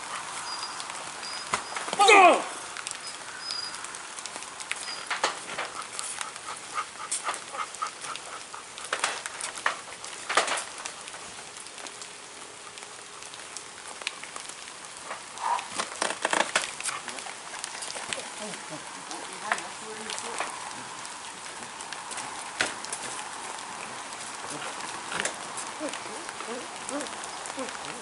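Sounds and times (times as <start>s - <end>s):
rain pattering on a tarp: 0.0s - 28.0s
short pitched cry: 2.0s - 2.6s.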